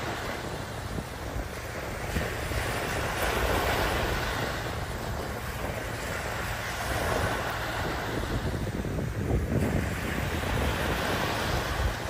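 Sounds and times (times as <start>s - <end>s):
small waves breaking on sand: 0.0s - 12.0s
wind rumbling on microphone: 0.0s - 12.0s.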